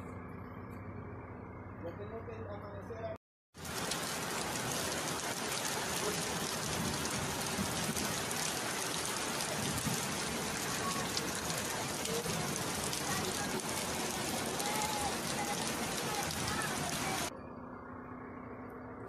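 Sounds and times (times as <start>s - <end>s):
heavy rain pouring: 3.6s - 17.3s.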